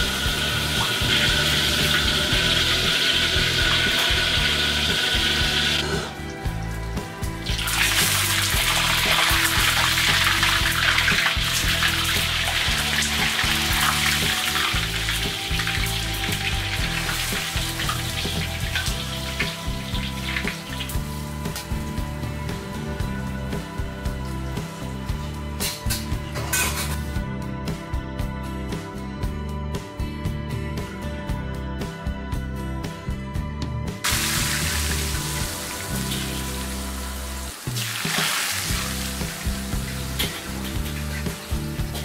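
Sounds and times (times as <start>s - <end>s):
food deep-frying in hot oil: 0.0s - 6.1s, 7.2s - 22.7s, 34.0s - 42.0s
background music with bass line: 0.0s - 42.0s.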